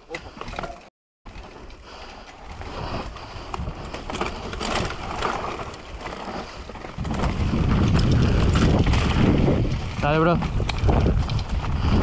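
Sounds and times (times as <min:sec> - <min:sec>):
bike tyres rolling over dirt: 0:00.2 - 0:12.0
bike chain and frame rattling: 0:00.3 - 0:12.0
wind rumble on microphone: 0:06.0 - 0:12.0.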